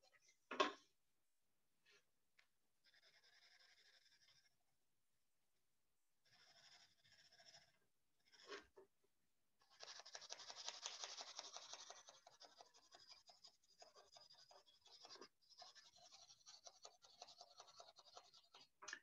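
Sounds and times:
pencil scratching on paper: 6.2 - 8.8, 9.6 - 18.8.

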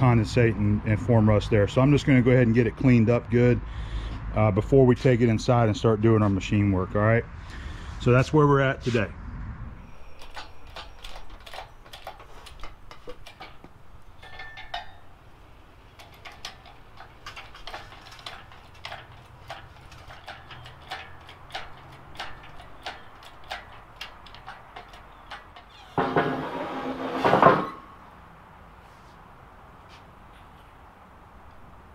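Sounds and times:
hydraulic hoist metallic clicks: 9.8 - 27.8.

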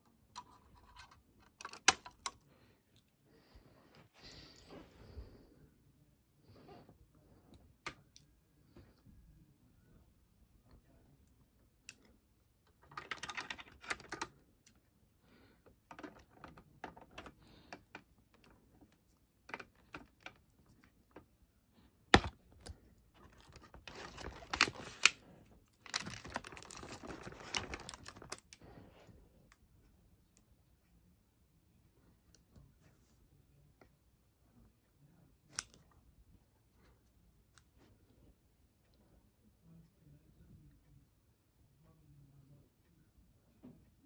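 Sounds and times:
cardboard rustling and scraping: 25.9 - 28.3.

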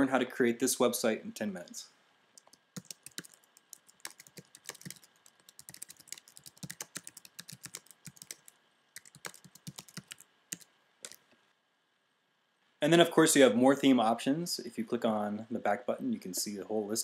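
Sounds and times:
keyboard typing clicks: 2.4 - 11.2.

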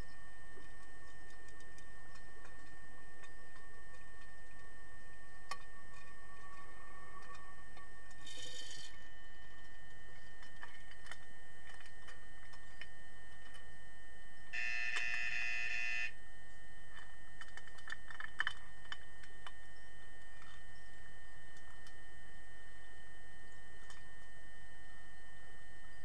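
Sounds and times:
underwater buzzer: 14.5 - 16.2.

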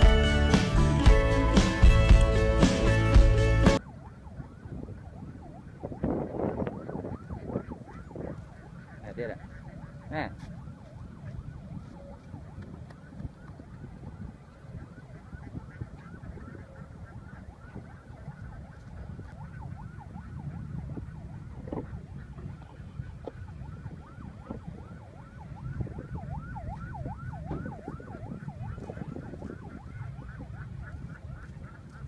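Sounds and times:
wind rumbling on microphone: 0.0 - 32.0.

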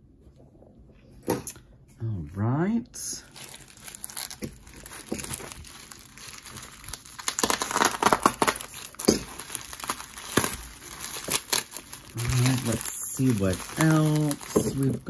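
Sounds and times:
bubble wrap crinkling: 3.2 - 15.0.

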